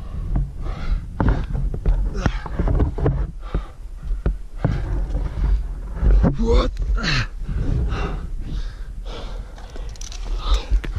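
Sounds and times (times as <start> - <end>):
heavy breathing: 0.0 - 10.9
low rumble: 0.0 - 10.9
climbing hardware clicking: 9.4 - 10.9.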